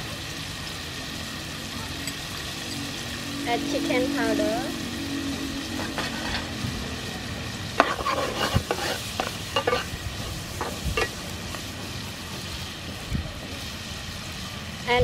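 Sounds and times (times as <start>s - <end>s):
clam meat sizzling in a pan: 0.0s - 15.0s
metal spoon scraping a pan: 5.6s - 6.6s, 7.8s - 11.2s.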